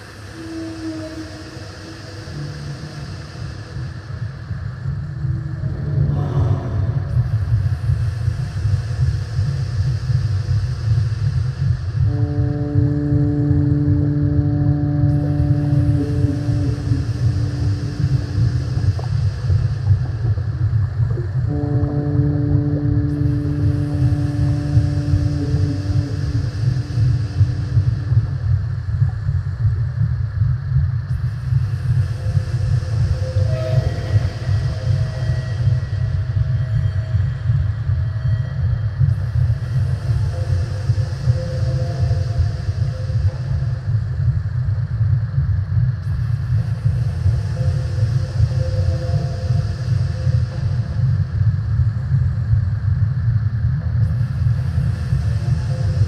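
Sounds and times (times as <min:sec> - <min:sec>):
deep low rumble: 0:04.6 - 0:08.0, 0:11.6 - 0:46.6
faint pitched tone: 0:12.1 - 0:19.1, 0:21.2 - 0:28.5.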